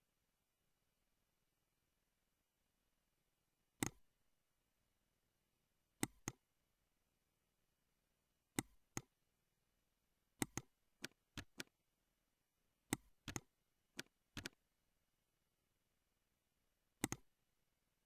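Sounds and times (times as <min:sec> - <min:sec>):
mouse and keyboard clicks: 0:03.8 - 0:04.0, 0:06.0 - 0:06.4, 0:08.6 - 0:09.1, 0:10.4 - 0:11.7, 0:12.9 - 0:14.6, 0:17.0 - 0:17.3.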